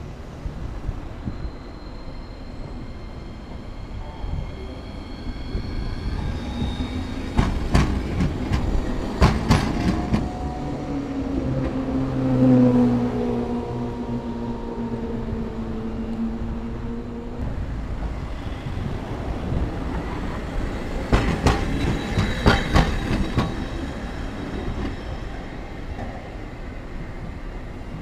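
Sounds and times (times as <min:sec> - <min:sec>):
tram motors whining: 0:00.2 - 0:28.0
tram wheels clacking over rail joints: 0:06.5 - 0:10.6, 0:18.1 - 0:26.6.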